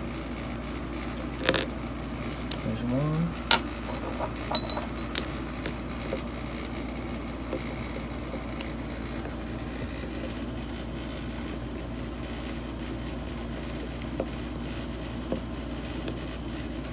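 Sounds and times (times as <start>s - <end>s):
steady low hum: 1.0s - 16.9s
metallic clink with ring: 3.9s - 5.1s.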